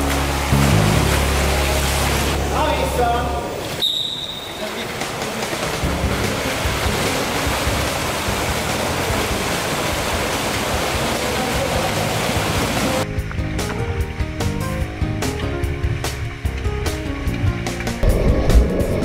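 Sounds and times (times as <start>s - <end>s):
swimmers splashing water: 0.0s - 13.1s.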